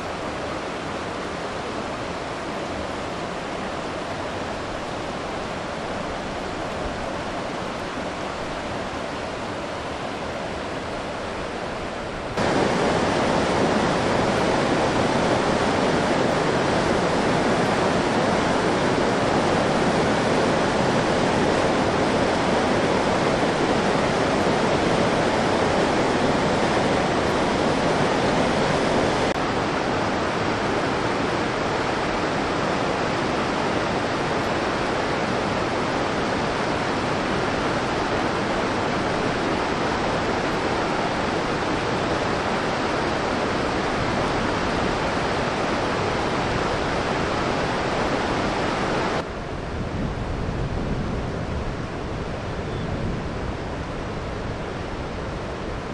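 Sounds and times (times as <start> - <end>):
river water rushing: 0.0 - 55.9.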